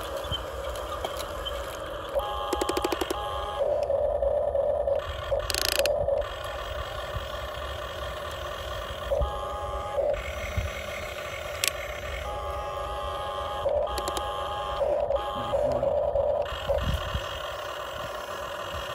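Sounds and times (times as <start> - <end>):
gears rattling: 0.0 - 4.0, 4.8 - 12.5, 13.2 - 18.9
toy electric motors whining: 0.0 - 18.9
quick clicks: 2.5 - 3.2, 5.3 - 6.4, 11.5 - 11.9, 13.9 - 14.3.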